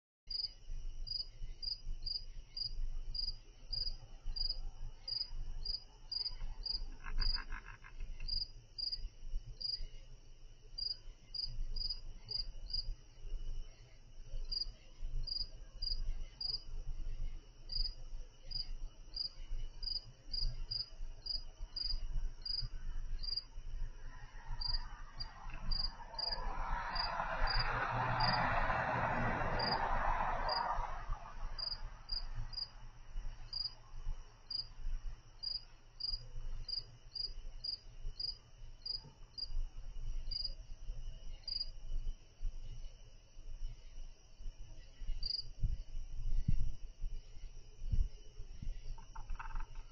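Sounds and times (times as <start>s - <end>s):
crickets chirping: 0.3s - 49.9s
vehicle passing: 23.9s - 33.6s.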